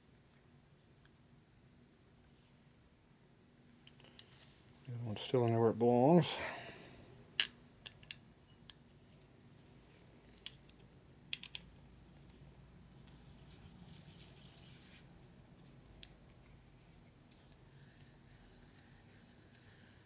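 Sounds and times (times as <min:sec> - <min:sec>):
small metal parts clicking: 0:10.4 - 0:11.7.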